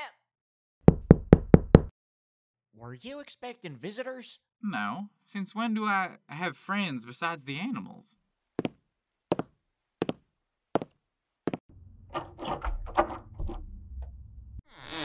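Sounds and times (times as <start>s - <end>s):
knocking on door: 0.8s - 1.9s
low rumble: 11.7s - 14.6s
clattering: 12.1s - 14.1s.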